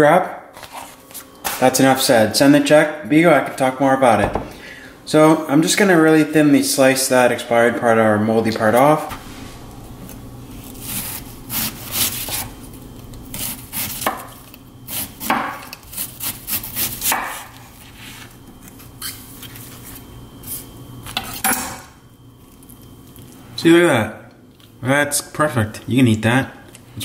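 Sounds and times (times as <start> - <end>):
knife slicing cabbage: 10.1 - 19.2.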